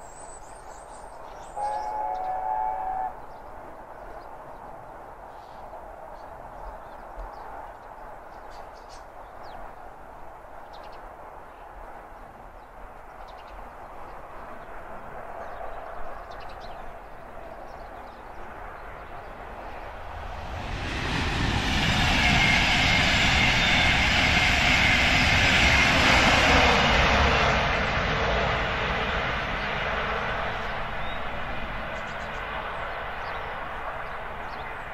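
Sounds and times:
distant steam train rumble: 1.2s - 4.3s, 12.6s - 34.9s.

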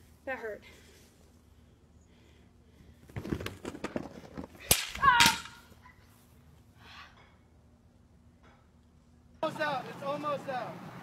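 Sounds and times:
sharp crack: 4.6s - 5.6s.

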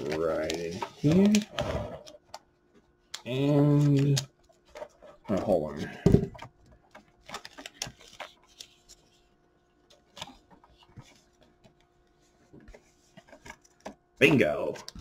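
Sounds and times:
stiff plastic rustles and clicks: 0.0s - 9.2s.

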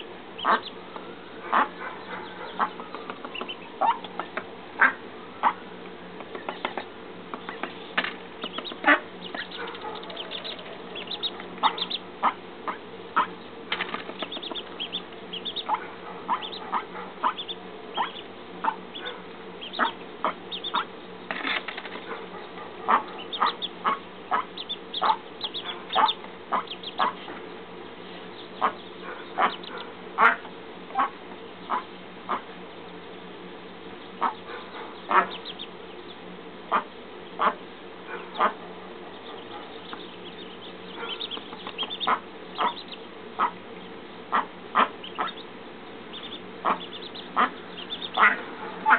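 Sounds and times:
duck bills tapping ground: 0.4s - 5.6s, 6.2s - 27.5s, 39.2s - 43.6s.

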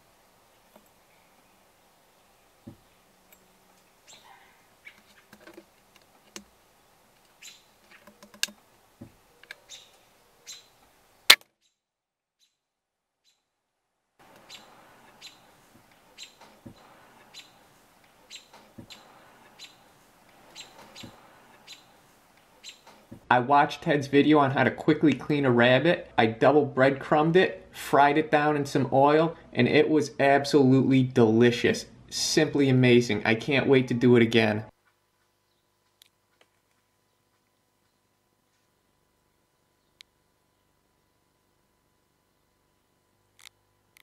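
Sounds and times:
faint steady hiss: 0.0s - 11.4s, 14.2s - 44.0s
birds chirping: 0.4s - 6.0s, 7.2s - 8.4s, 9.0s - 10.9s, 14.2s - 23.2s.

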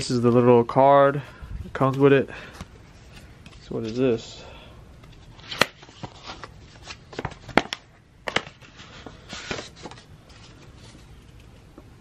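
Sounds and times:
paper rustling: 5.2s - 11.6s.

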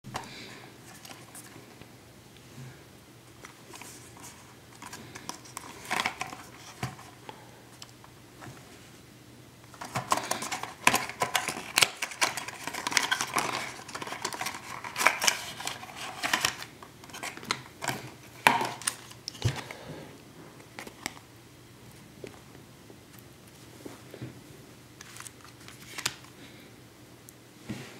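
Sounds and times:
box being opened and rustling: 0.1s - 1.6s, 3.4s - 7.2s, 9.7s - 19.7s.

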